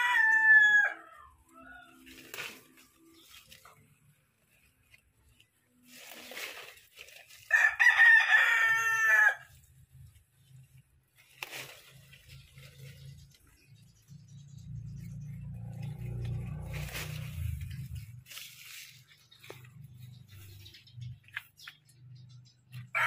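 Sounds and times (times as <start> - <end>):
rooster crowing: 0.0 - 2.1, 7.5 - 9.5
leafy rustles: 0.0 - 23.0.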